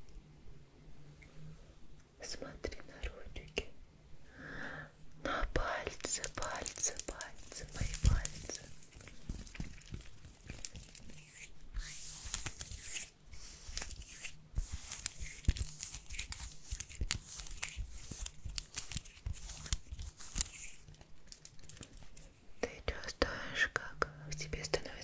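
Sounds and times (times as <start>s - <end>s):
crackling and rustling: 5.6s - 22.5s.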